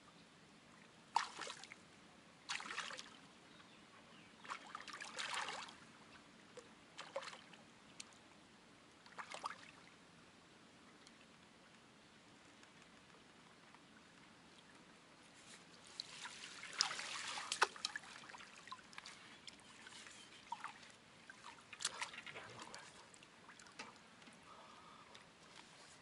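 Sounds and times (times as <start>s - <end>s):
water trickling: 15.8s - 24.3s
fish splashing in water: 16.2s - 18.9s.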